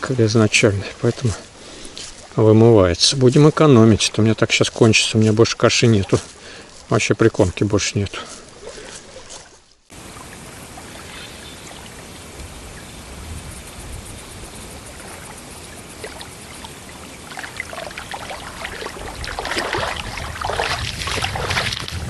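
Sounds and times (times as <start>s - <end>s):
water splashing and crackling: 0.0s - 13.7s, 14.3s - 22.0s
river water trickling: 0.0s - 22.0s.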